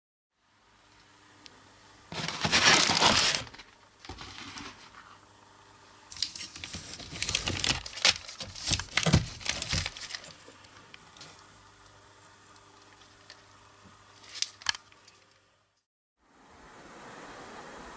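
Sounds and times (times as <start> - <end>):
paper rustling and crinkling: 2.1 - 5.2, 6.1 - 11.4, 14.2 - 15.4.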